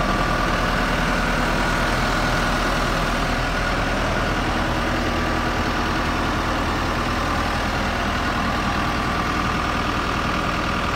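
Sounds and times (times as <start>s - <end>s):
diesel engine idling: 0.0s - 10.9s.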